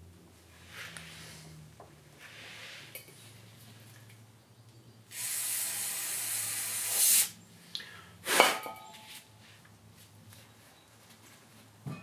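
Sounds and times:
aerosol spray hissing: 5.1 - 7.4.

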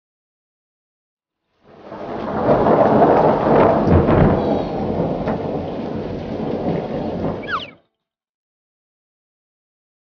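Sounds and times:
deep rumble of shaking ground: 1.7 - 7.7.

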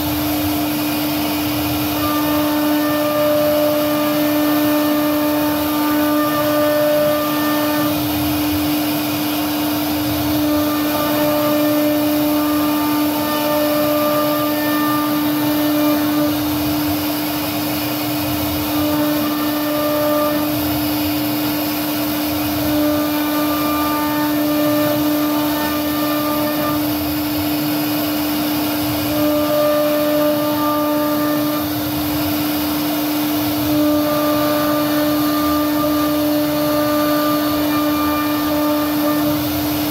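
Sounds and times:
router spindle whining: 1.6 - 17.1, 17.7 - 20.7, 21.4 - 27.6, 33.4 - 39.9.

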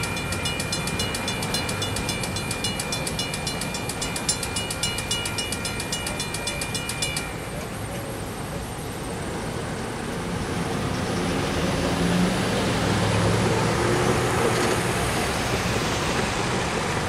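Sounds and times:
cars driving past: 10.6 - 17.0.

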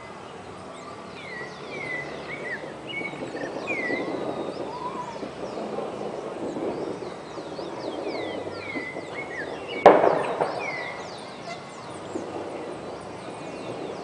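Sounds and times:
birds whistling: 0.0 - 14.0
sharp bang: 4.8 - 14.0.

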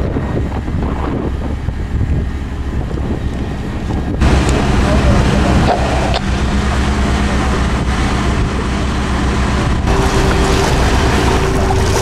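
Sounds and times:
wind noise on microphone: 0.0 - 6.6
boat engine running: 0.0 - 12.0
steady high whine: 0.0 - 12.0.

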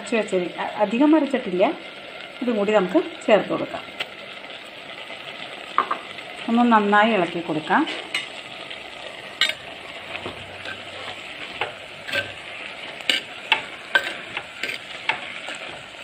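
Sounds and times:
metal spoon scraping clay pot: 10.6 - 15.9.

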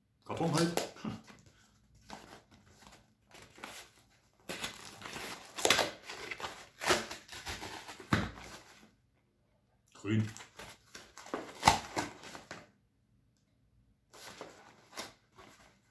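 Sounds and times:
cardboard tearing: 2.1 - 8.7, 10.4 - 12.6.

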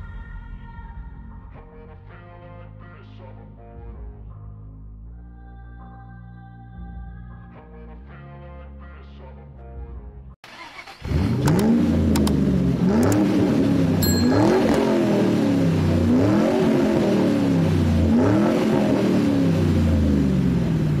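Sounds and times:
car engine revving: 10.6 - 21.0
sharp clicks: 11.4 - 12.4, 13.0 - 13.3
short high ding: 14.0 - 15.4.

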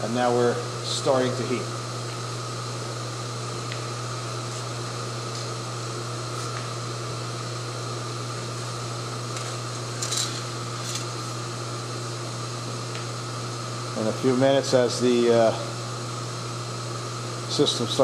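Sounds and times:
induction melter hum and whine: 0.0 - 18.0
metal tongs clattering: 9.4 - 11.1.

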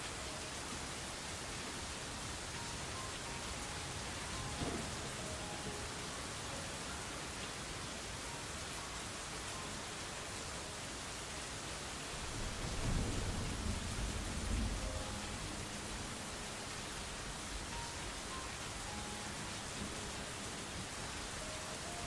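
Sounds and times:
steady rain: 0.0 - 22.0
low thunder rumble: 12.3 - 16.2.

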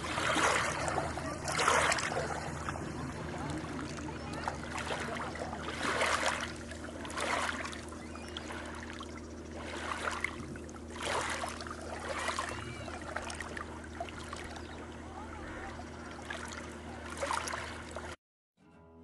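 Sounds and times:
waves lapping on pebbly shore: 0.0 - 9.0, 9.6 - 14.6
steady low hum: 0.0 - 18.2.

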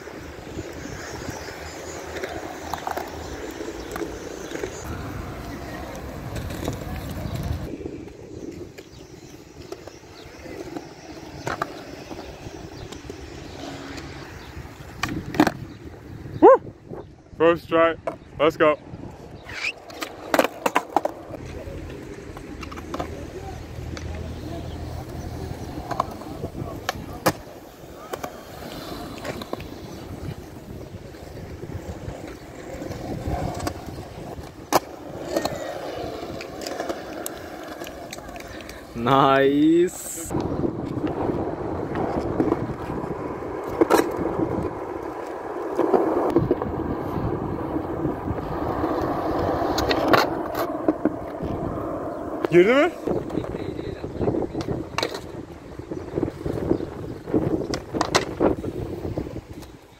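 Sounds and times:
skateboard wheels rolling on concrete: 0.0 - 59.9
skateboard clacking on ground: 0.6 - 13.4, 14.8 - 15.7, 19.5 - 59.8
sharp skateboard clack: 25.7 - 30.2, 32.2 - 38.9, 40.3 - 46.7, 54.3 - 55.4, 57.6 - 58.8.

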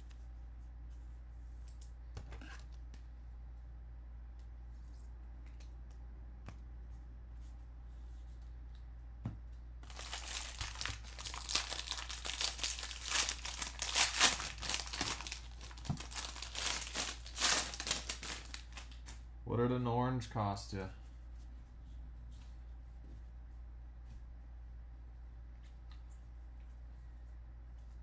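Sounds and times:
foil wrappers tearing and crinkling: 9.8 - 19.2.

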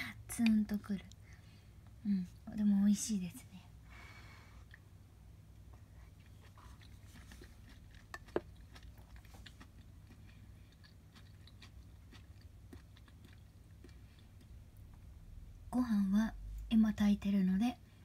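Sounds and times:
low steady hum: 0.0 - 18.0
close chewing: 5.8 - 15.0.

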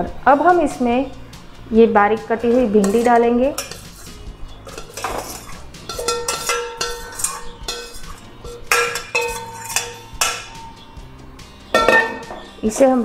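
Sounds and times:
metal bowl clinking against pan: 2.5 - 11.0, 11.6 - 12.6.

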